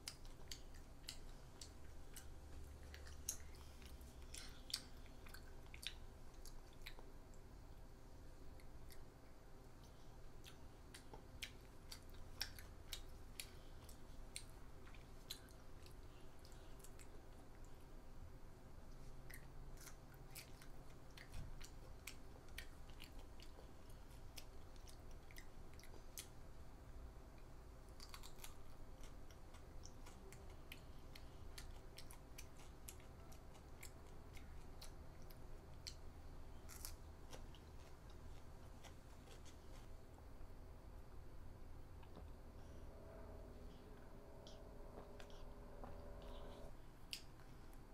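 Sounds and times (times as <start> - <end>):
faint low hum: 0.0 - 47.9
child crunching vegetables: 19.0 - 26.3, 27.9 - 36.0, 36.6 - 40.0.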